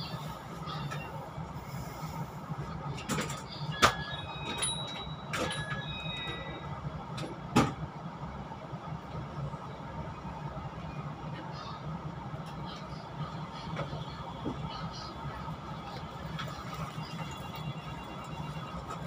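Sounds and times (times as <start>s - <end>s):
train humming: 0.0s - 19.0s
passengers walking: 8.8s - 19.0s.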